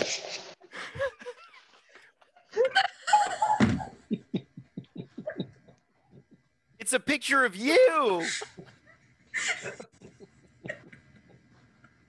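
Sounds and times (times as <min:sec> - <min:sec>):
woman laughing: 0:02.5 - 0:06.5, 0:08.2 - 0:11.6.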